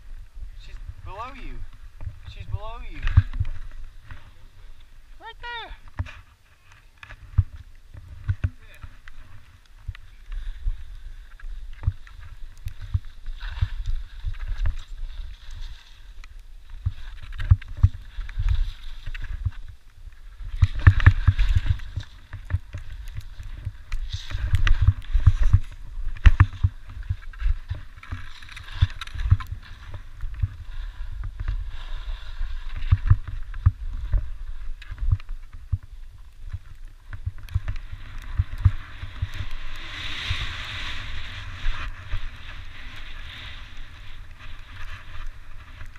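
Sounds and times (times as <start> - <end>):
wind buffeting microphone: 0.0 - 5.2, 16.8 - 45.9
skis scraping over snow: 0.0 - 45.9.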